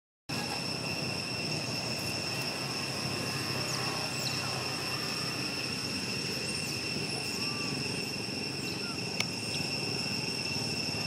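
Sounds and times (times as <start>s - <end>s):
high-pitched whine: 0.3s - 11.0s
low continuous rumble: 0.3s - 11.0s.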